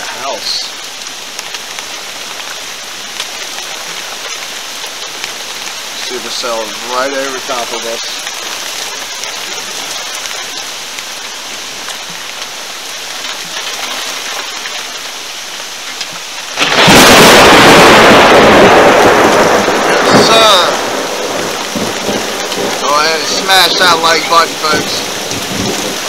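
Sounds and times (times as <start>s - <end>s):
rain hiss: 0.0s - 26.0s
thunder clap: 16.6s - 26.0s.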